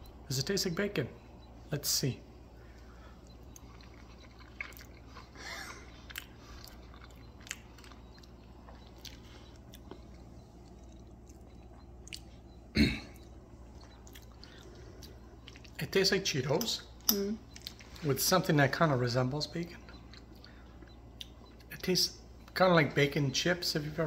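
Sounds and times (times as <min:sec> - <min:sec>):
man chewing food: 0:02.2 - 0:22.6
throat vocal sound: 0:12.7 - 0:13.3.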